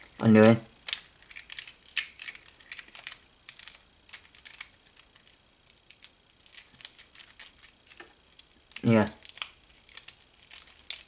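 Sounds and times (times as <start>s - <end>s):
plastic puzzle cube clicking: 8.7s - 11.0s.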